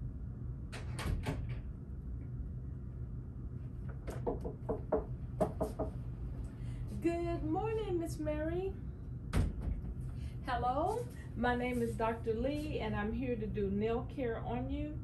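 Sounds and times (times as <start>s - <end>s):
low room hum: 0.0s - 15.0s
door knocks and latch clicks: 4.0s - 5.6s.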